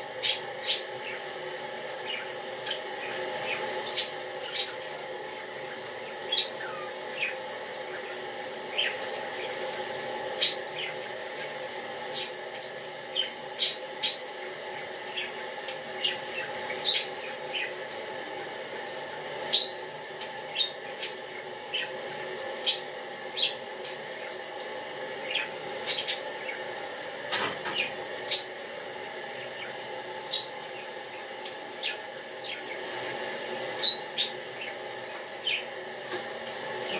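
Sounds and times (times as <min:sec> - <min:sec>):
steady background hum: 0:00.0 - 0:36.9.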